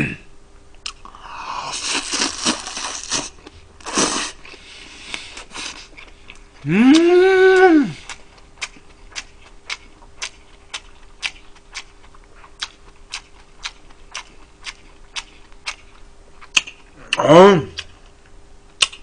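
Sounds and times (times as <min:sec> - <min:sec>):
man humming: 0:06.6 - 0:08.1, 0:17.0 - 0:17.8
chewing smacks: 0:08.0 - 0:17.0, 0:18.8 - 0:19.0.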